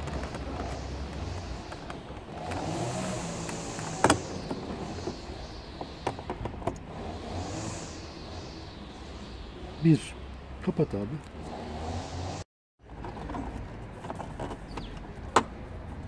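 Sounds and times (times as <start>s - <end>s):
steady low rumble: 3.2s - 10.7s.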